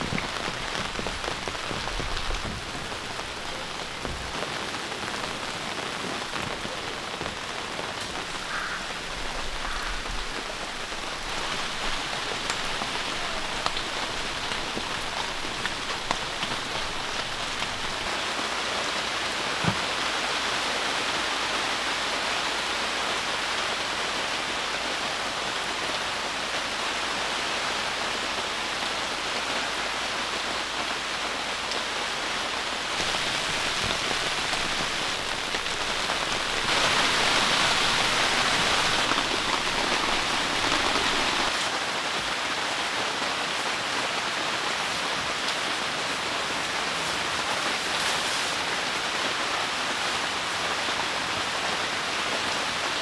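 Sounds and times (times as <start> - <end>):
loud raindrop hits: 0.0 - 18.1, 32.9 - 41.5
heavy rain falling: 0.0 - 53.0.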